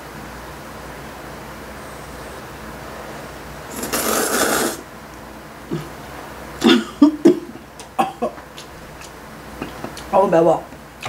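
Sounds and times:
person slurping noodles: 0:03.7 - 0:04.8
chewing and mouth sounds: 0:07.6 - 0:10.1.

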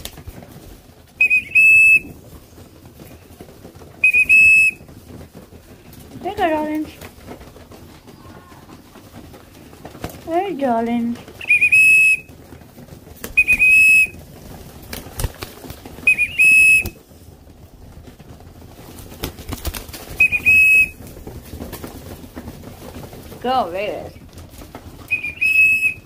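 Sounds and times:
whistle blasts: 0:01.2 - 0:02.1, 0:04.0 - 0:04.8, 0:11.4 - 0:12.3, 0:13.4 - 0:14.2, 0:16.0 - 0:17.0, 0:20.2 - 0:21.0, 0:25.1 - 0:26.0.

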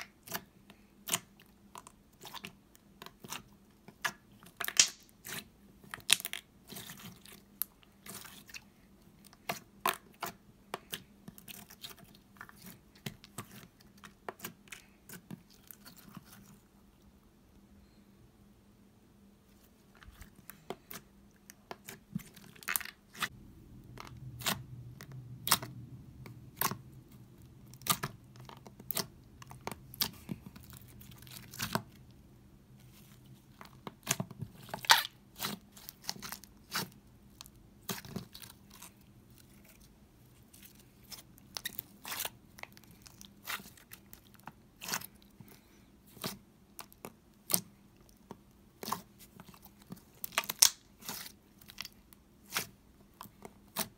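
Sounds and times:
slime clicking and popping: 0:04.6 - 0:05.1.

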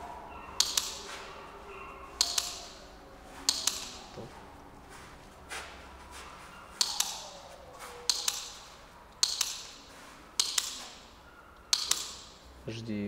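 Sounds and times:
clicker double clicks: 0:02.2 - 0:02.7.

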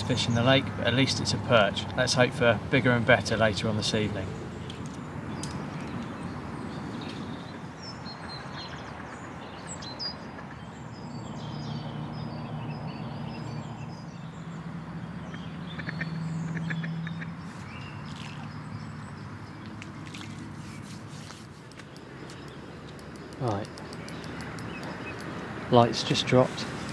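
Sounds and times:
outdoor background noise: 0:00.0 - 0:26.9
birds chirping and calling: 0:02.9 - 0:26.9.

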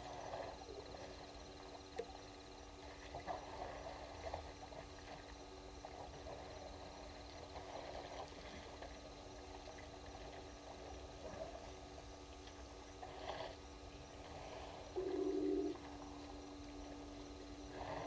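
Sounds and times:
steady low hum: 0:00.0 - 0:18.0
low hooting bird call: 0:15.0 - 0:15.8.

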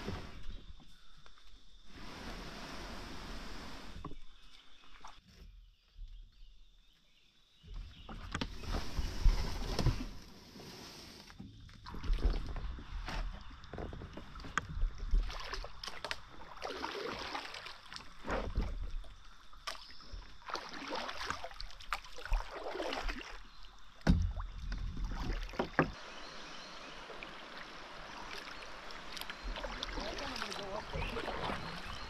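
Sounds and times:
paddle swishing through water: 0:00.0 - 0:01.1, 0:01.9 - 0:05.7, 0:07.8 - 0:32.0.

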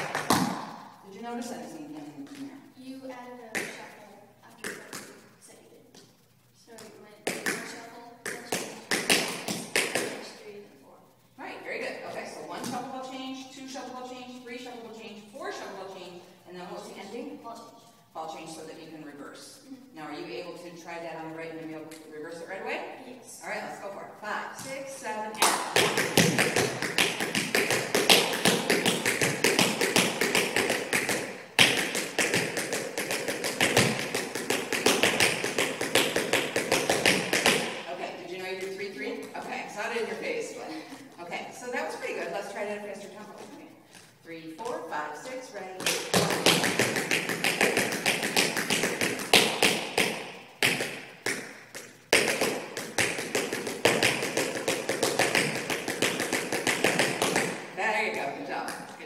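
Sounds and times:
tap shoes on hard floor: 0:00.0 - 0:00.7, 0:25.4 - 0:37.8, 0:45.8 - 0:57.6.

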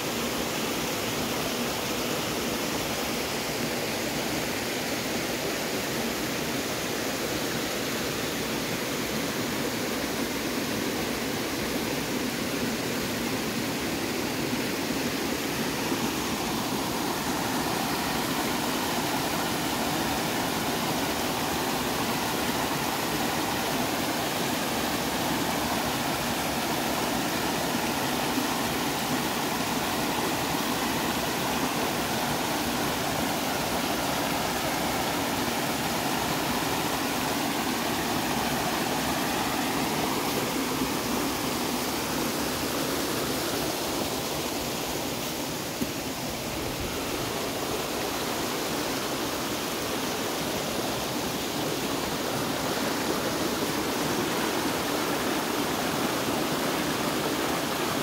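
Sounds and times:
creek water splashing over rocks: 0:10.1 - 0:58.0.

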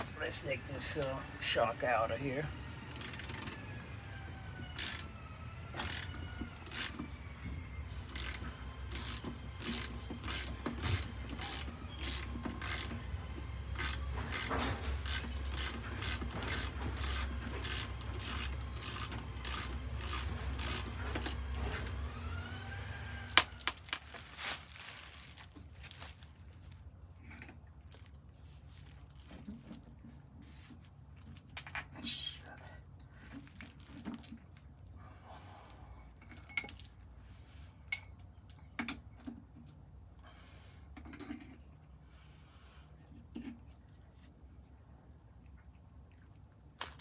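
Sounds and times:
ratchet wrench clicking: 0:02.9 - 0:03.6, 0:04.8 - 0:05.1, 0:05.8 - 0:07.0, 0:08.1 - 0:13.0, 0:13.8 - 0:21.9.

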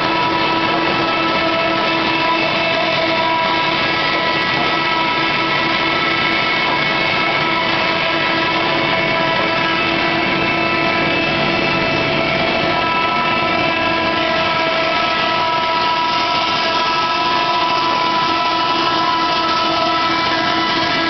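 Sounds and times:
industrial wood planer running: 0:00.0 - 0:21.0.

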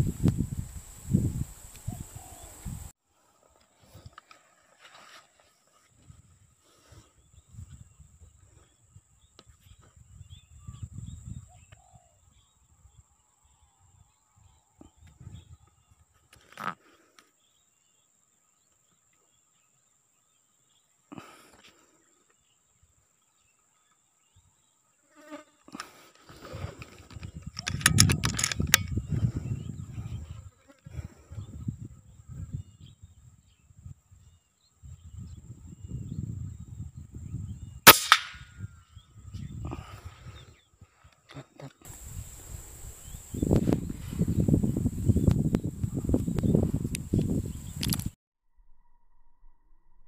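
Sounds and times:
rifle shot: 0:37.9 - 0:38.6.

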